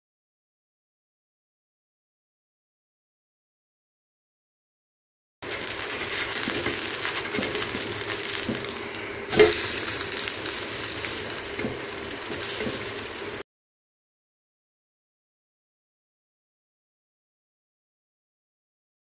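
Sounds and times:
batter sizzling in oil: 0:05.4 - 0:13.4
wooden spatula scraping griddle: 0:05.4 - 0:13.4.

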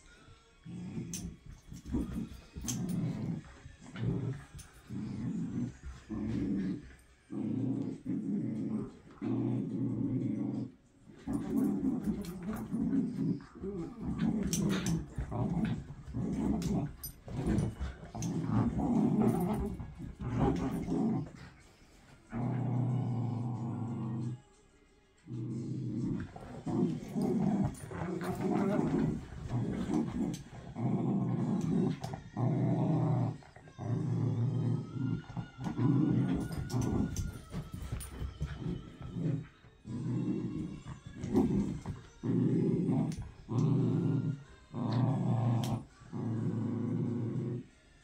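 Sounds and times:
dogs growling in play: 0:00.6 - 0:24.5, 0:25.2 - 0:47.8.

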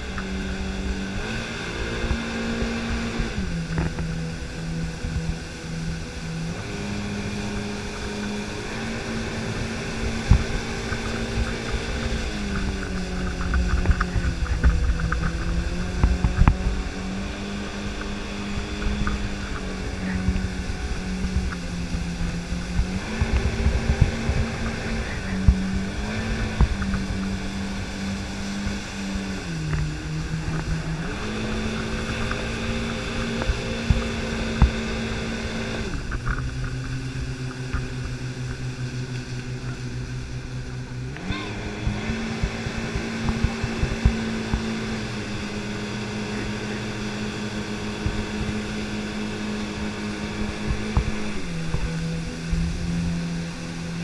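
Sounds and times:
churning wake water: 0:00.0 - 0:54.0
motorboat engine running: 0:00.0 - 0:54.0
rushing wind: 0:00.0 - 0:54.0.

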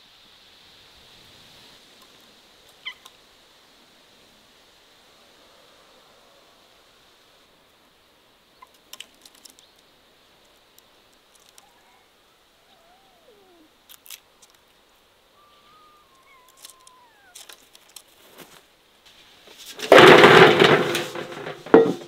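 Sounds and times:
soft gliding bird calls: 0:02.7 - 0:03.2, 0:08.5 - 0:13.9, 0:14.5 - 0:17.9.

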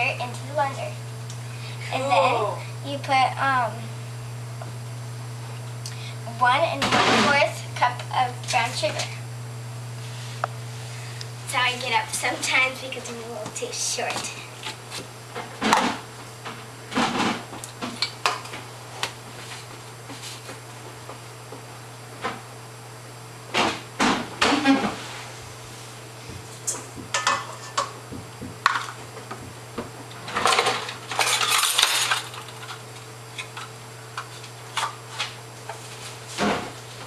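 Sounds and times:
metal canisters clinking and scraping: 0:30.3 - 0:32.8.

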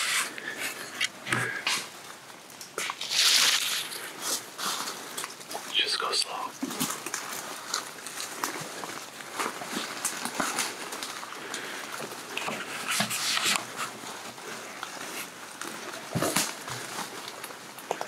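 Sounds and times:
brush rustling against clothing: 0:00.0 - 0:02.0, 0:02.8 - 0:11.2, 0:12.5 - 0:17.3
footsteps through dry leaves: 0:02.8 - 0:05.3.

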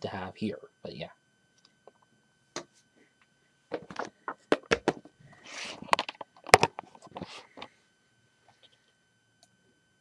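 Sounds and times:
rustling scrape: 0:05.4 - 0:05.9.

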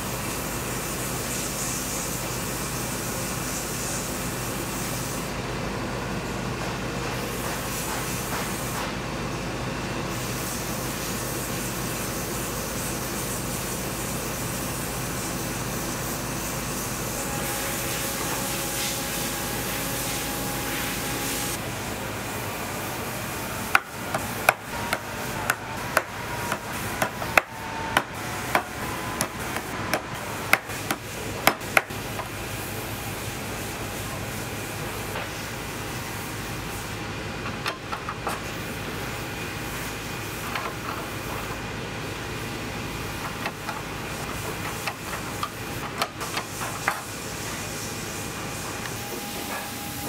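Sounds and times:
workshop machine humming: 0:00.0 - 0:50.0
hammer blows: 0:23.5 - 0:32.0.

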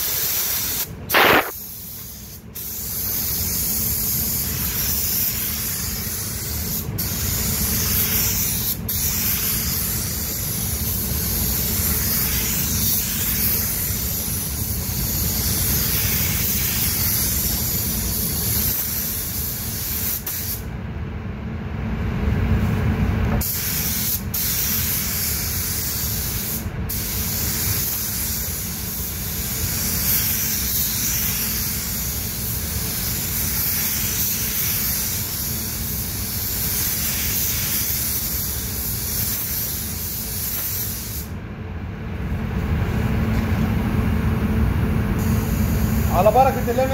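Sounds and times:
air spray gun hissing: 0:00.0 - 0:20.7, 0:23.4 - 0:41.4, 0:45.2 - 0:46.9
low steady rumble: 0:20.6 - 0:23.4.

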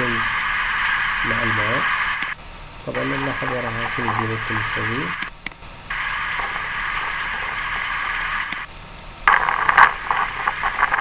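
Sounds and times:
drilling rig mechanical noise: 0:00.0 - 0:11.0
irregular mechanical clatter: 0:06.3 - 0:11.0.

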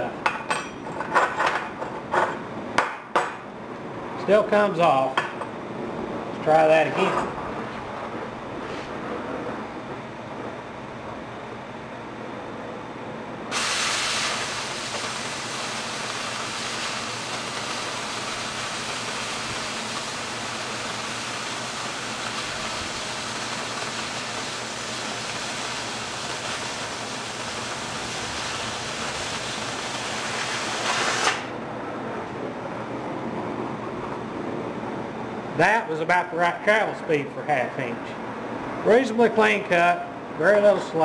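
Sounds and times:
oxygen jet cutting steel: 0:13.5 - 0:31.5
preheat flame hissing: 0:13.5 - 0:31.5.

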